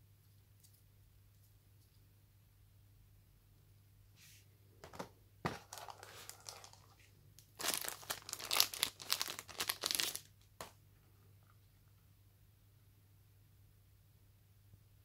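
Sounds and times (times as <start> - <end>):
plastic bag crinkling: 5.6 - 10.4.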